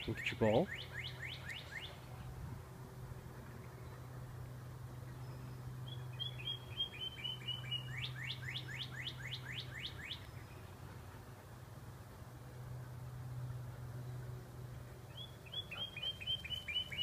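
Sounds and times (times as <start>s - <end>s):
songbird singing: 0.0s - 2.2s, 3.4s - 11.1s, 15.0s - 17.0s
steady low hum: 0.0s - 17.0s.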